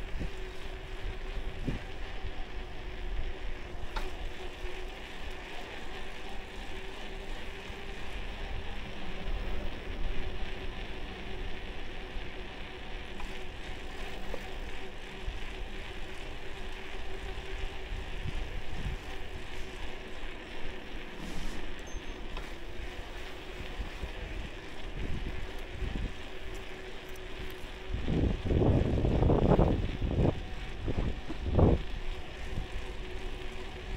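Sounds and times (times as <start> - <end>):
road noise hiss: 0.0 - 33.9
wind rumble: 22.9 - 33.9.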